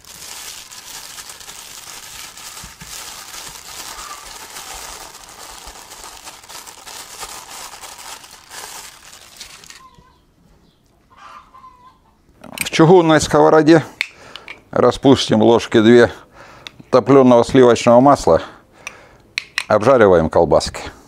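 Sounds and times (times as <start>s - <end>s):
sausage casing crinkling: 0.0s - 10.2s.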